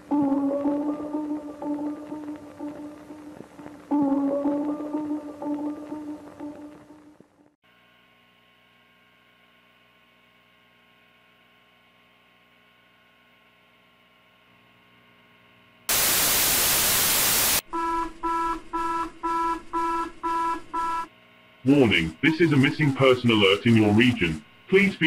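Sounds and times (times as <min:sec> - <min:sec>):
steady tones: 0:00.0 - 0:07.2
faint electrical hum: 0:00.0 - 0:25.0
burst of loud static: 0:15.9 - 0:17.6.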